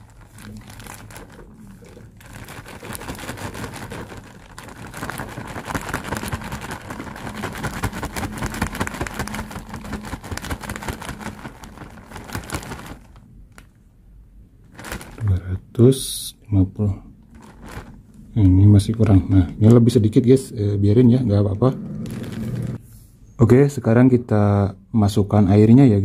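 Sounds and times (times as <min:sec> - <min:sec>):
plastic bag crinkling: 0:00.0 - 0:13.8, 0:14.6 - 0:15.4, 0:17.2 - 0:20.3, 0:21.5 - 0:22.8.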